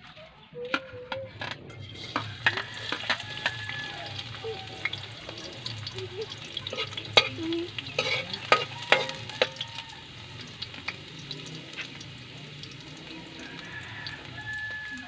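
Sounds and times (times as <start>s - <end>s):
metal spatula scraping a pan: 0.7s - 9.8s
garlic sizzling in a wok: 1.8s - 15.0s.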